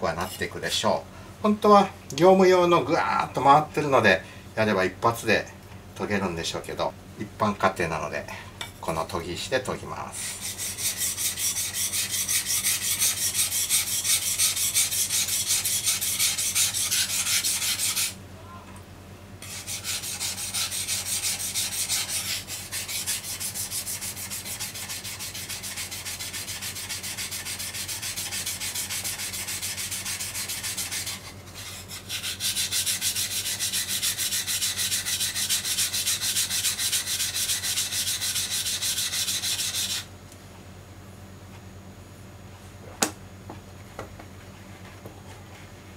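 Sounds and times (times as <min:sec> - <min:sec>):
knife scraping on whetstone: 0:10.2 - 0:18.2, 0:19.4 - 0:40.0.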